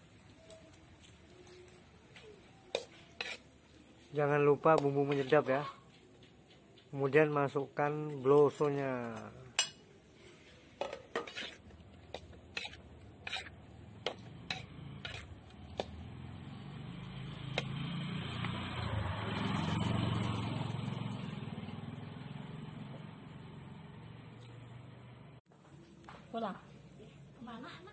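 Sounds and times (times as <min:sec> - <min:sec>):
food sizzling: 0:00.0 - 0:05.6, 0:08.0 - 0:20.7
metal spatula scraping in wok: 0:02.7 - 0:05.6, 0:09.5 - 0:15.9.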